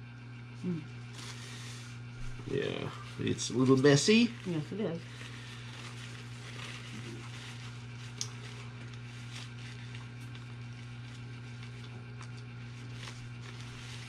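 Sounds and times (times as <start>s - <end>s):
low electrical hum: 0.0s - 14.0s
paper wrappers rustling: 1.1s - 14.0s
people chewing: 4.4s - 14.0s.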